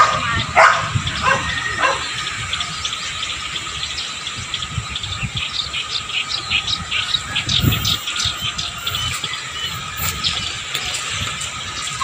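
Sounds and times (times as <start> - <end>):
dog barking: 0.0 - 2.1
birds chirping: 0.0 - 12.0.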